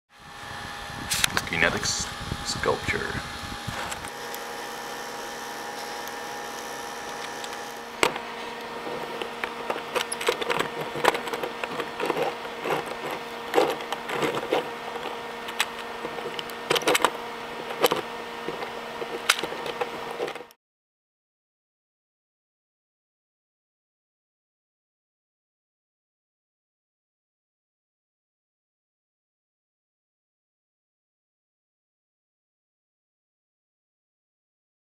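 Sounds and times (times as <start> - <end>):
steady hum: 0.2 - 20.5
plastic gears clicking and rattling: 9.4 - 20.6.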